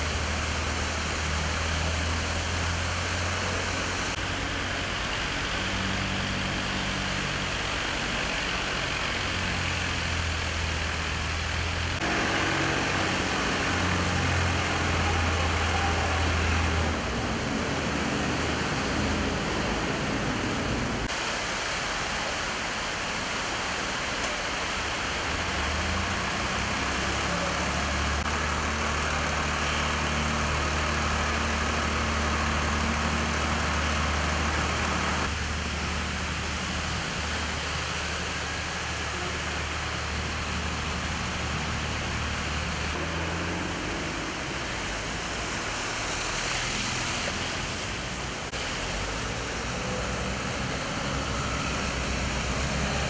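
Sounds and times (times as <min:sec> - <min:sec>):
rushing water hiss: 0:00.0 - 0:53.0
car engines idling: 0:22.6 - 0:46.4.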